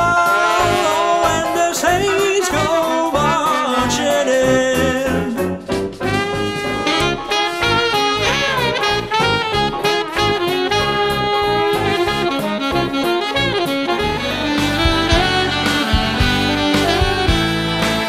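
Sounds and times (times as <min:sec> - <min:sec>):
alto saxophone melody: 0:00.0 - 0:05.1, 0:06.0 - 0:18.0
man singing: 0:00.0 - 0:05.6
upbeat jazzy backing track: 0:00.0 - 0:18.0.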